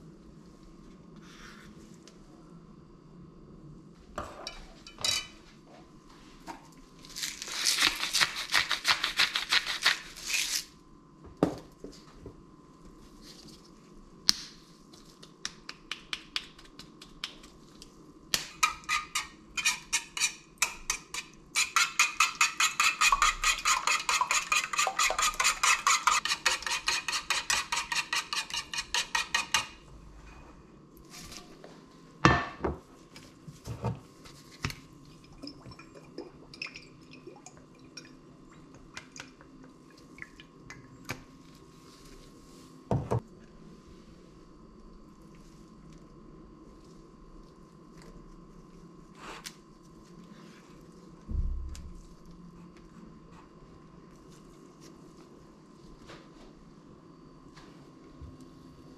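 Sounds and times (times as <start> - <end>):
whisk clinking against dish: 18.6 - 29.7.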